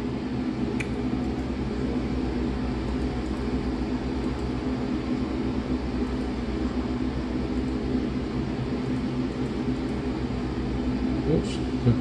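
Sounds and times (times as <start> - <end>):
shop fan rushing: 0.0 - 12.0.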